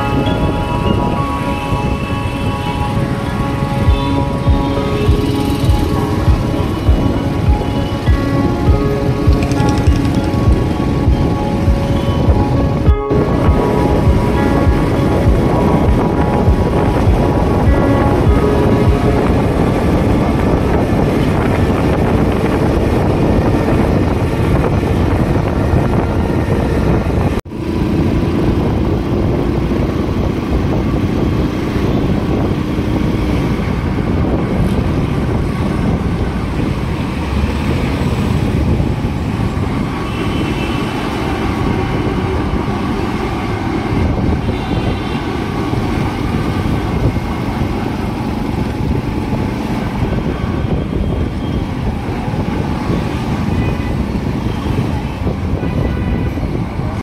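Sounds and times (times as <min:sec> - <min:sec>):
wind buffeting microphone: 0:00.0 - 0:57.0
motorcycle engine: 0:02.3 - 0:22.8.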